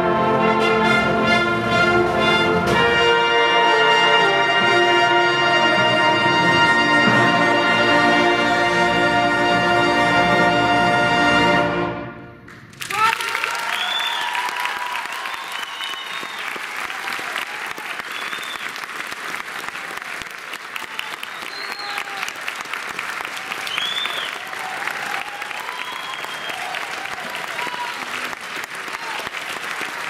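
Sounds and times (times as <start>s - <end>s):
audience applauding: 12.5s - 30.0s
cheers and whoops: 12.8s - 18.8s, 20.8s - 22.4s, 23.3s - 29.4s.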